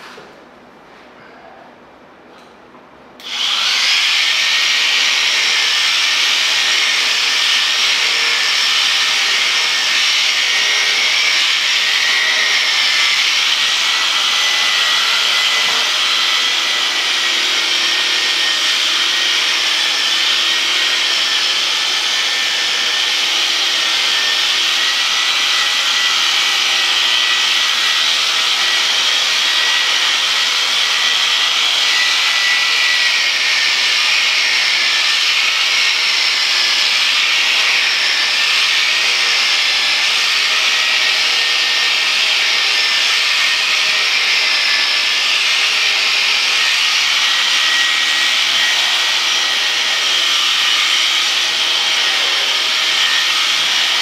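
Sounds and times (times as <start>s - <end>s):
electric shears whining: 3.2s - 54.0s.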